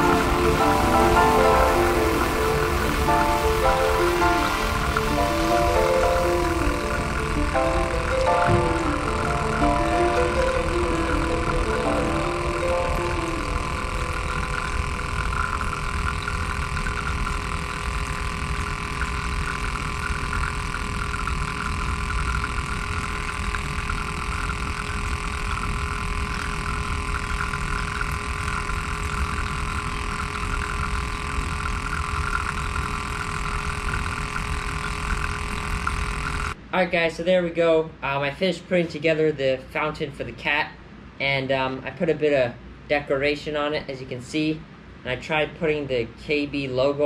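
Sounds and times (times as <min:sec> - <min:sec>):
water pouring and splashing: 0:00.0 - 0:36.6
water pump motor humming: 0:00.0 - 0:36.6.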